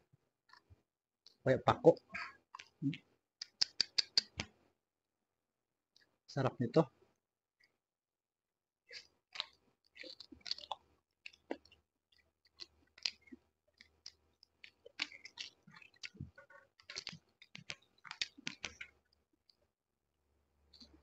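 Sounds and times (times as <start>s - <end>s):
person chewing with wet smacks: 2.1s - 4.5s, 8.9s - 19.6s, 20.7s - 21.0s.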